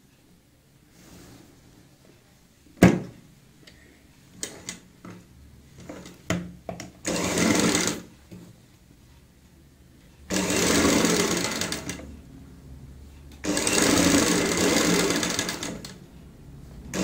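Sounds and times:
sewing machine stitching: 7.0s - 8.1s, 10.3s - 12.1s, 13.4s - 16.0s.

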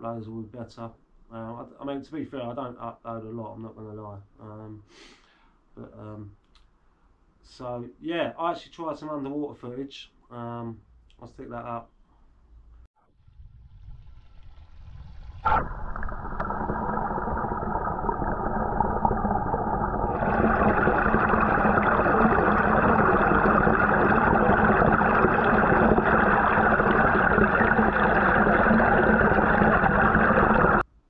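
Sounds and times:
air-stone bubbling: 13.3s - 30.8s
underwater rush of water: 13.3s - 30.8s.

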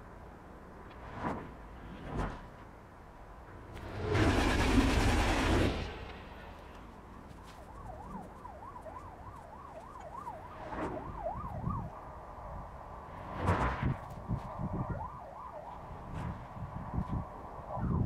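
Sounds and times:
loud rushing noise: 3.6s - 6.6s
emergency siren wailing: 7.3s - 12.8s, 14.4s - 18.0s.

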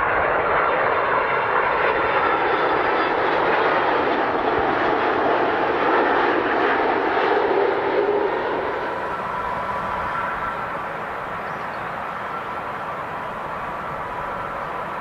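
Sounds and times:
airliner engines rushing: 0.0s - 15.0s
faint high whine: 8.3s - 15.0s.

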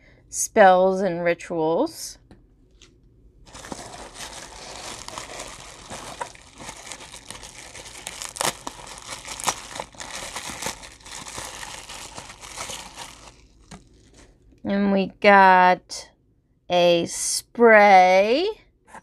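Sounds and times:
paper shred and bubble wrap rustling: 3.5s - 14.4s.

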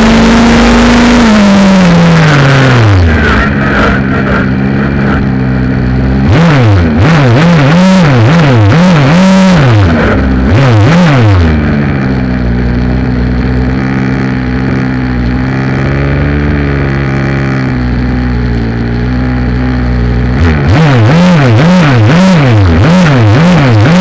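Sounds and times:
model truck engine revving: 0.0s - 24.0s.

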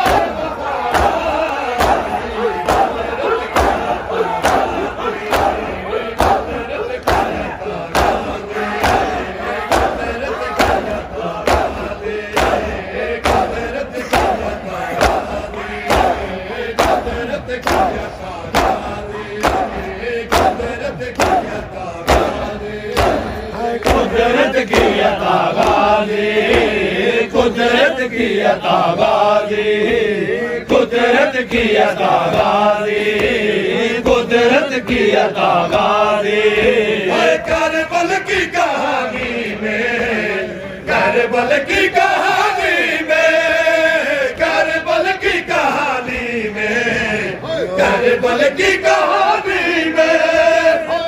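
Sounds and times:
chest-beating slaps: 0.0s - 26.9s
men chanting in unison: 0.0s - 51.0s.

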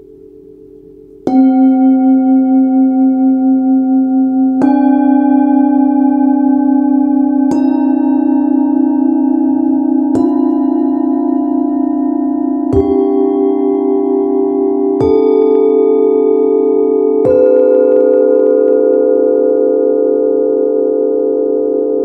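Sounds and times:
singing bowls struck and ringing: 0.0s - 22.0s.

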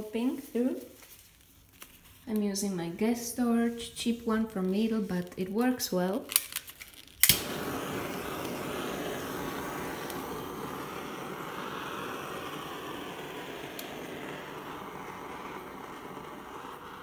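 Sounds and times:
gas torch hissing: 7.2s - 17.0s.

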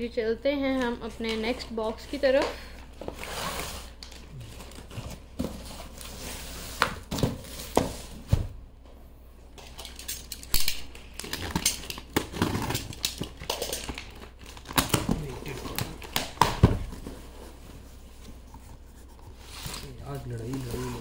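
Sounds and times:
packaging rustling: 9.6s - 21.0s.

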